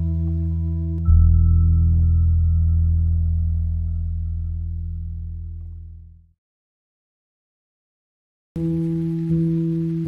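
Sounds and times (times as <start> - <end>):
ambient music low tones: 0.0 - 6.4, 8.6 - 10.0.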